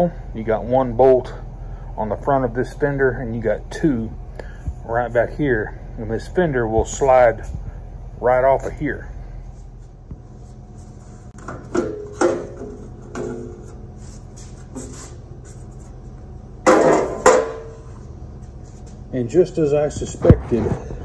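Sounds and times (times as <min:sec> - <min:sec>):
sheet metal clanking: 0:11.4 - 0:13.8, 0:16.6 - 0:17.9.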